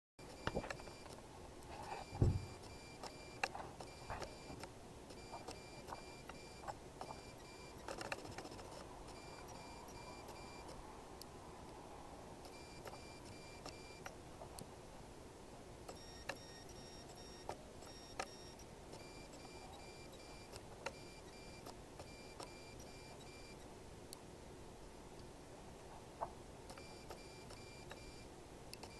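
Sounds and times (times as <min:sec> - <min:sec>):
faint high-pitched beeping: 0:00.2 - 0:01.2, 0:01.8 - 0:10.8, 0:12.4 - 0:14.1, 0:15.9 - 0:23.7, 0:26.7 - 0:28.9
low thump of book: 0:02.1 - 0:02.5.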